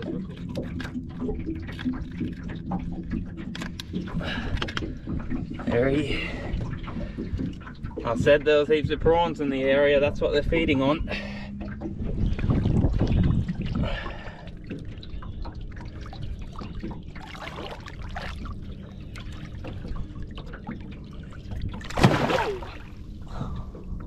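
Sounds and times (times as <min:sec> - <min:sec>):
water trickling and sloshing: 0:00.0 - 0:24.0
fish splashing: 0:15.6 - 0:18.7, 0:21.7 - 0:23.1.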